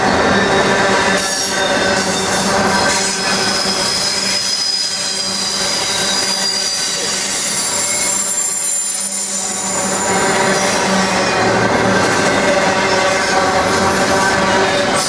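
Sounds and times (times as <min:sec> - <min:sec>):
train wheels rumbling on rails: 0:00.0 - 0:15.0
wheel squeal: 0:00.0 - 0:15.0.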